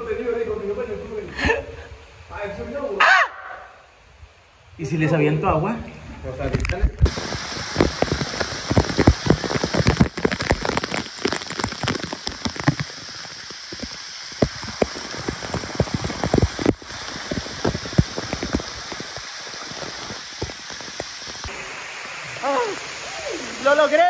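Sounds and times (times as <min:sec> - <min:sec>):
water cascading into pool: 0:05.1 - 0:24.0.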